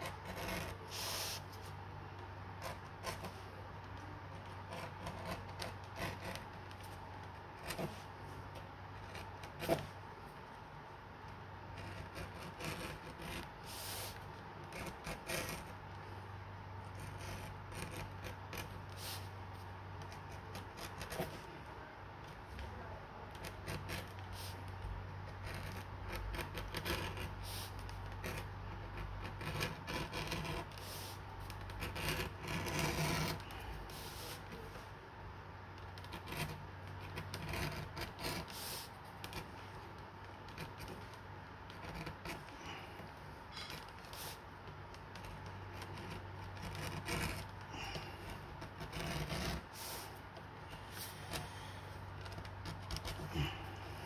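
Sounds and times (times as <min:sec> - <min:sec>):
low steady hum: 0:00.0 - 0:54.0
edge beveler scraping leather: 0:11.7 - 0:15.8, 0:23.4 - 0:34.8, 0:35.8 - 0:41.1, 0:41.7 - 0:54.0.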